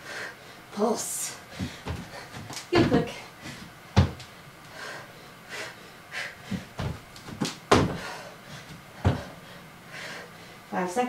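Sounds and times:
feet and hands thudding on mat: 1.6 - 4.3, 6.5 - 9.3.

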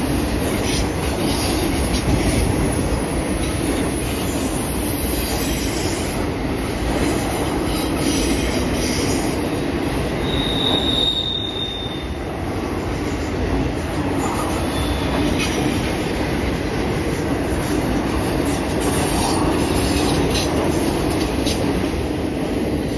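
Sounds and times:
train wheels rumbling on rail: 0.0 - 22.9
high-pitched wheel squeal: 10.2 - 12.2.

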